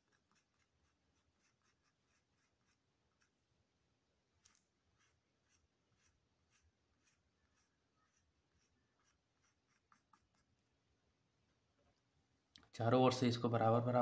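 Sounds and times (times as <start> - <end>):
pencil scratching on paper: 0.0 - 3.4, 4.4 - 10.6.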